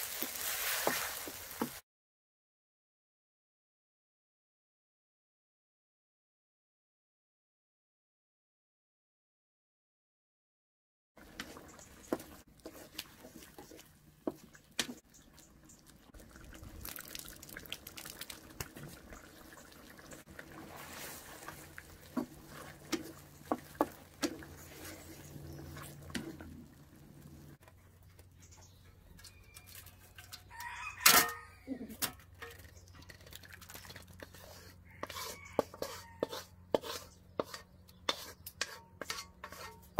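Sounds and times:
spatula scraping a steel wok: 0:11.2 - 0:15.0, 0:20.2 - 0:26.5, 0:33.8 - 0:39.9
fish simmering: 0:11.2 - 0:27.6, 0:32.4 - 0:35.6
rooster crowing: 0:30.4 - 0:31.8.

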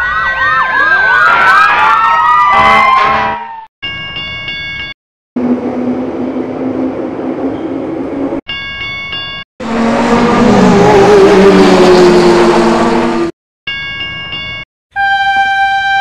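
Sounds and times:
railroad crossing bell ringing: 0:03.8 - 0:05.0, 0:08.5 - 0:09.4, 0:13.7 - 0:16.0
engine-like hum: 0:05.4 - 0:08.4, 0:09.6 - 0:13.3
race car engine: 0:09.6 - 0:13.3.

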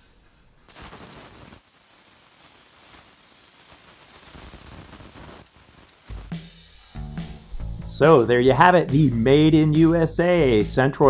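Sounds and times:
plasma torch hissing: 0:00.0 - 0:10.0.

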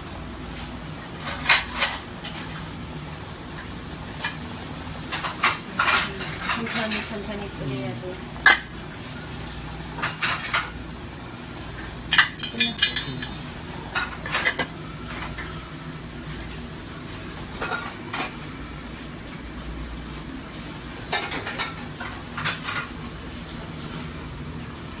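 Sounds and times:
gas burners rumbling: 0:00.0 - 0:25.0
metal pots and lids clattering: 0:01.2 - 0:02.4, 0:05.1 - 0:07.3, 0:08.4 - 0:08.7, 0:10.0 - 0:10.8, 0:12.1 - 0:15.5, 0:17.6 - 0:18.4, 0:21.0 - 0:23.0.

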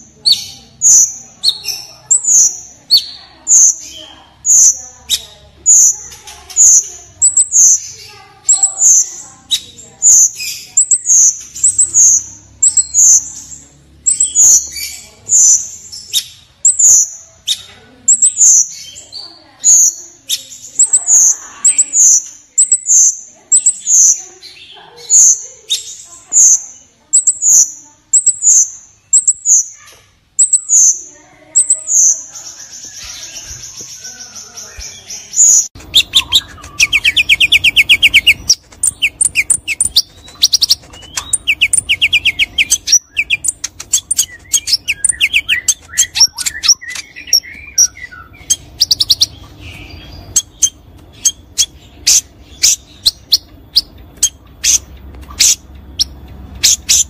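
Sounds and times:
bird sharp chips: 0:00.1 - 0:57.0
bird singing whistles and trills: 0:31.6 - 0:54.8.

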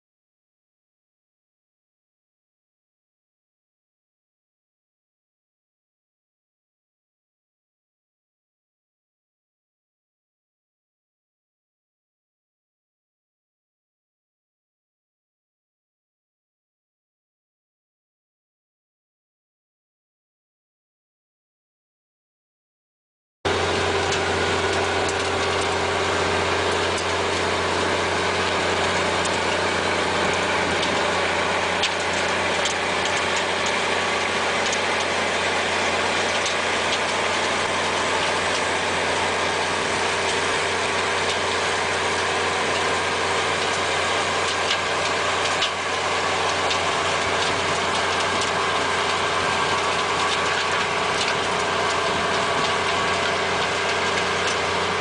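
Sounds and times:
engine running steadily: 0:23.5 - 0:55.0.

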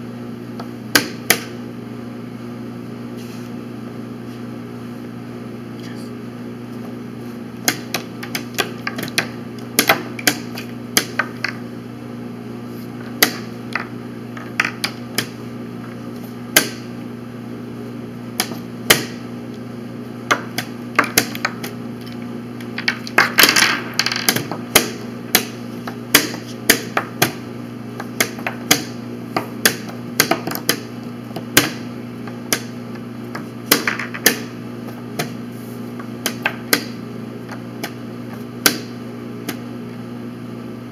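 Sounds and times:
chess pieces knocking on board: 0:22.8 - 0:25.5, 0:33.4 - 0:34.5.

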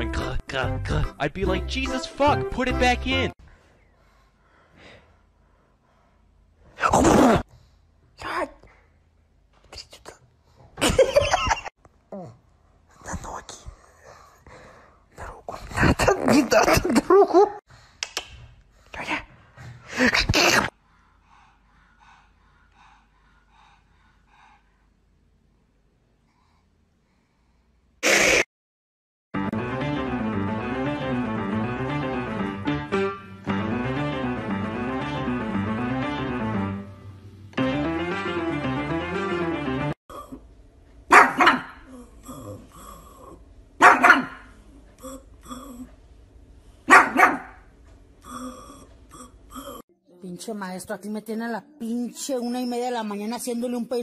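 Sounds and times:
snuffly breaths: 0:17.7 - 0:28.4
dog barking in short woofs: 0:41.1 - 0:41.8, 0:43.8 - 0:44.4, 0:46.9 - 0:47.5.

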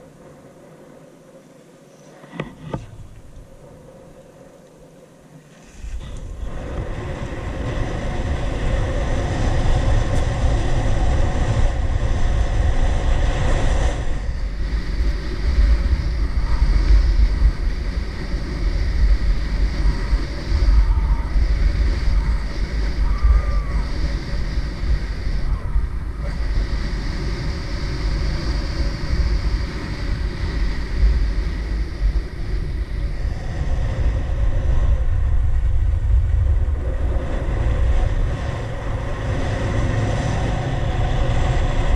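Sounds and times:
wind buffeting microphone: 0:00.0 - 0:41.9
skis sliding on snow: 0:05.3 - 0:34.6.

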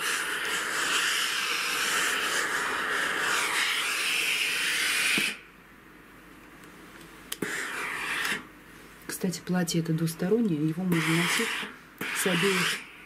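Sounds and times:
steam iron hissing: 0:00.0 - 0:05.4, 0:07.4 - 0:08.5, 0:10.9 - 0:13.0.

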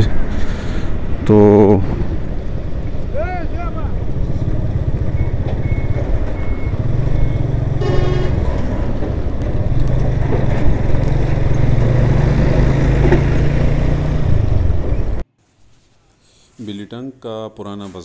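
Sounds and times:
motorcycle engine running: 0:02.1 - 0:08.3.

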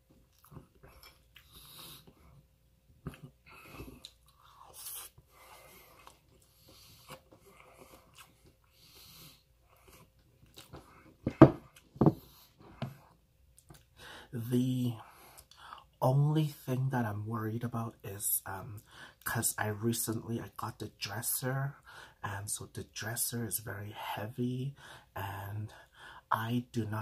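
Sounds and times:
person chewing: 0:00.3 - 0:02.2, 0:03.0 - 0:08.8, 0:09.7 - 0:10.9.

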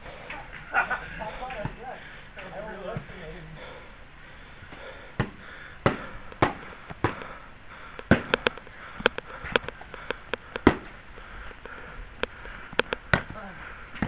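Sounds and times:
foam swords whacking: 0:08.1 - 0:08.4, 0:10.6 - 0:10.9.

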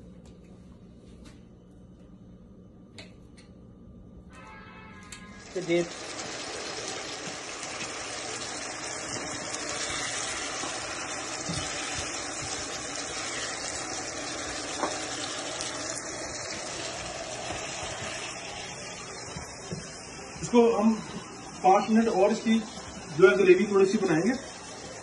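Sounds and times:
gravy sizzling in a pan: 0:05.3 - 0:25.0
spatula stirring: 0:09.1 - 0:14.0.

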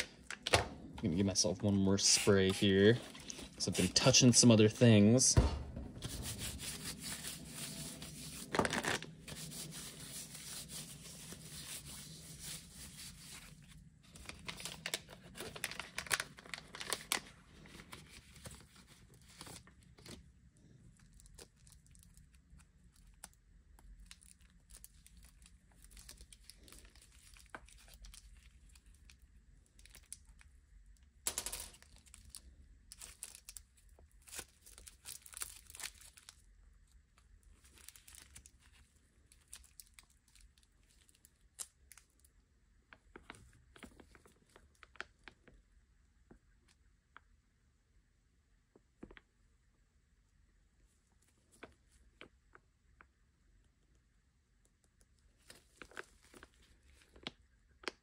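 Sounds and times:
plastic wrapping crinkling and tearing: 0:06.1 - 0:20.2, 0:20.9 - 0:30.4, 0:31.8 - 0:36.4, 0:37.4 - 0:42.3, 0:55.4 - 0:58.0.

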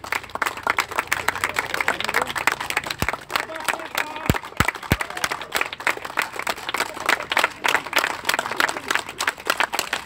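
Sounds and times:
crowd applauding: 0:00.0 - 0:10.0.

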